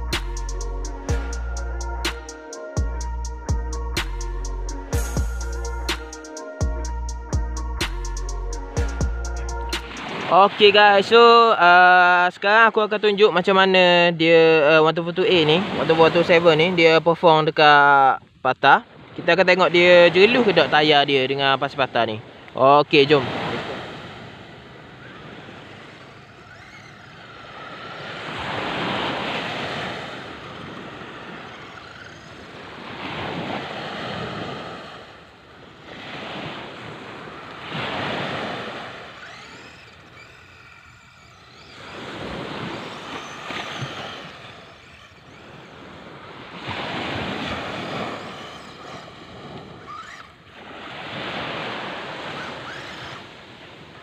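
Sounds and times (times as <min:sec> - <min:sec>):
small waves breaking on sand: 0:09.8 - 0:17.0, 0:18.6 - 0:54.0.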